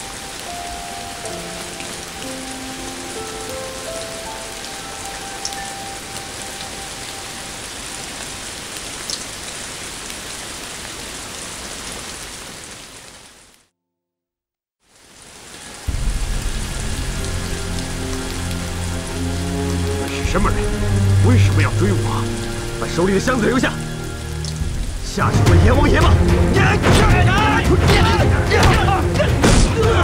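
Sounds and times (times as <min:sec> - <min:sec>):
heavy rain falling: 0:00.0 - 0:13.7, 0:14.9 - 0:30.0
low music score: 0:00.1 - 0:08.2, 0:15.9 - 0:30.0.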